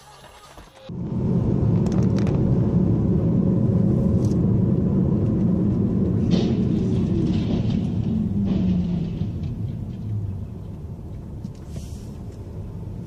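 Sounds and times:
car driving on road: 0:00.2 - 0:13.0.

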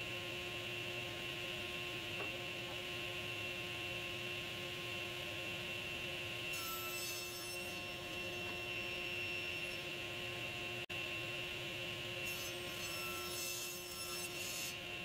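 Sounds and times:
saw cutting through wood: 0:06.4 - 0:10.0, 0:12.2 - 0:14.9
table saw running: 0:06.4 - 0:10.8, 0:11.8 - 0:15.0.

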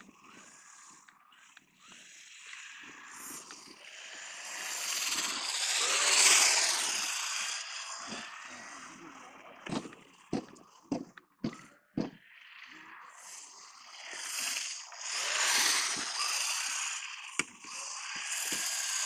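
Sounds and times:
rc car motor whine: 0:00.0 - 0:19.0
sharp knocks: 0:09.7 - 0:12.2
spiked tyres hissing on ice: 0:13.2 - 0:19.0.

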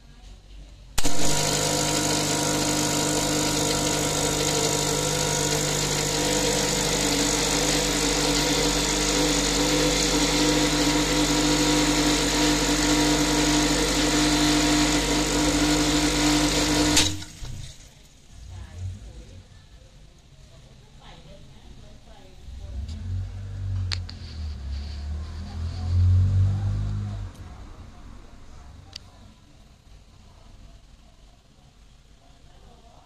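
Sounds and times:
espresso machine pump humming: 0:01.0 - 0:17.3.

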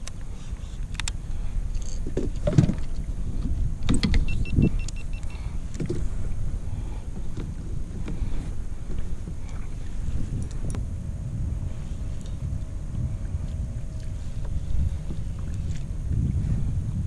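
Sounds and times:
choppy water: 0:00.0 - 0:17.0
wind rumbling on microphone: 0:00.0 - 0:17.0.

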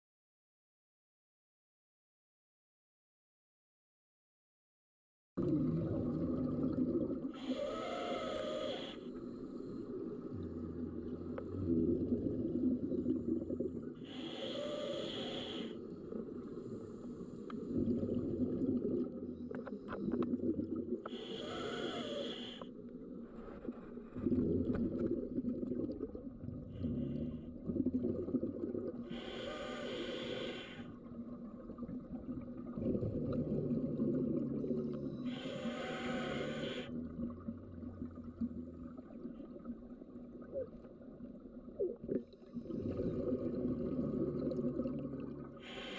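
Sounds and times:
exhaled bubbles rushing: 0:05.4 - 0:07.4, 0:24.1 - 0:29.1, 0:31.1 - 0:35.3, 0:41.7 - 0:45.6
regulator inhalation surge: 0:29.1 - 0:30.9, 0:35.3 - 0:36.9.

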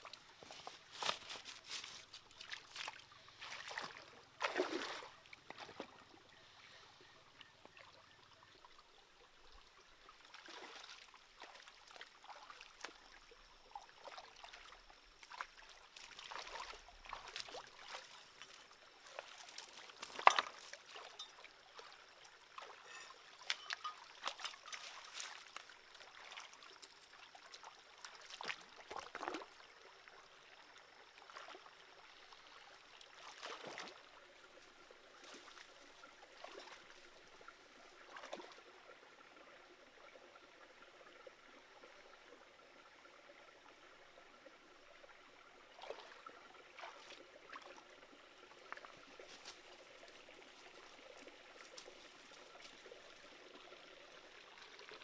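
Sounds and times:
splashes of wading in water: 0:00.0 - 0:06.8, 0:10.2 - 0:30.2, 0:31.1 - 0:38.8, 0:45.7 - 0:55.0
stream trickling: 0:00.0 - 0:55.0.

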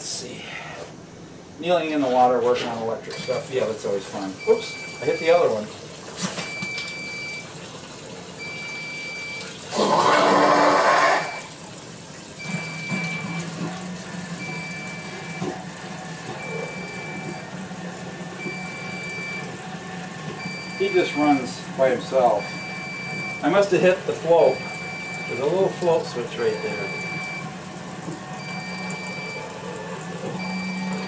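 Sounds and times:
pump motor humming: 0:03.1 - 0:31.0
electronic alarm beeping: 0:04.4 - 0:05.5, 0:06.5 - 0:07.5, 0:08.4 - 0:09.5, 0:12.4 - 0:13.5, 0:14.4 - 0:15.6, 0:16.4 - 0:17.5, 0:18.4 - 0:19.6, 0:20.4 - 0:23.6, 0:24.3 - 0:25.7, 0:26.4 - 0:27.5, 0:28.4 - 0:29.5, 0:30.4 - 0:31.0.

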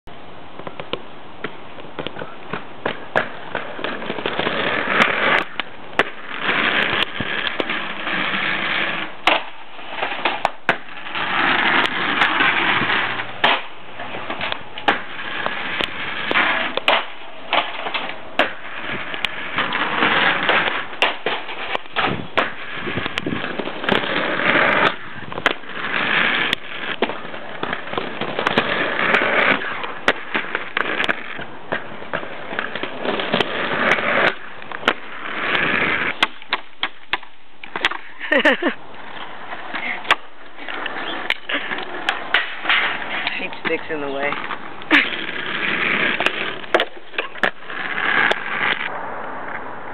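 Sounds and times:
inline skate wheels on asphalt: 0:00.0 - 0:49.9.

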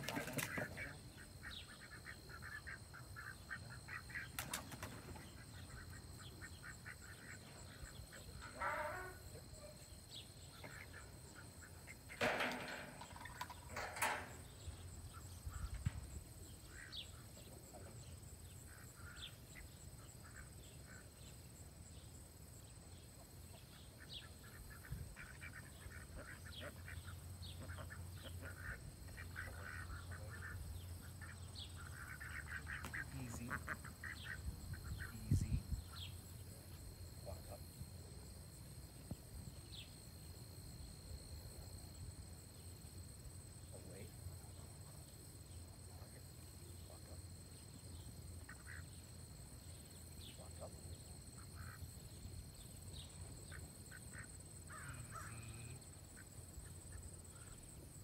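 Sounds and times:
ducks quacking: 0:00.0 - 0:04.5, 0:24.0 - 0:36.0.

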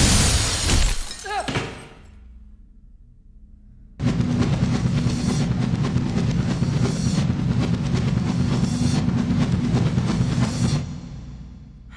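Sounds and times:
film score with pounding drums: 0:03.9 - 0:11.9.

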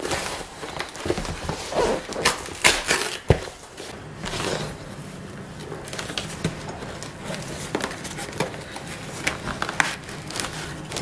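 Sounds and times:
packaging crinkling: 0:05.6 - 0:11.0.

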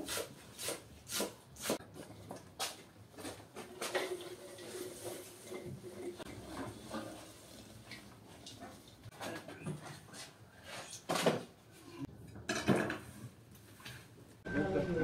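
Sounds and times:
metal bowl rubbing pan rim: 0:04.2 - 0:07.8.

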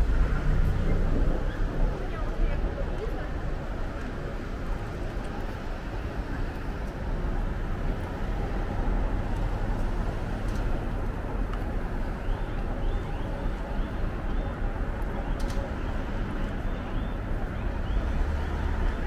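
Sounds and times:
city street traffic rumble: 0:00.0 - 0:19.0.

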